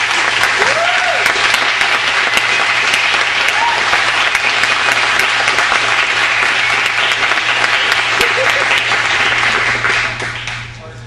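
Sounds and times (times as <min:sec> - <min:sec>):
audience clapping: 0:00.0 - 0:10.9
vocal whoop: 0:00.6 - 0:01.4, 0:03.5 - 0:04.0.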